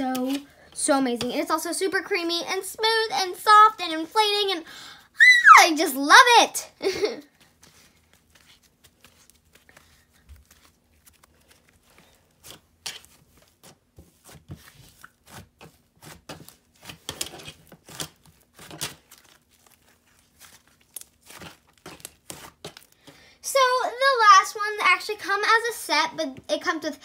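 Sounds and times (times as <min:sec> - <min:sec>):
slime being kneaded by hand: 0:07.3 - 0:23.2.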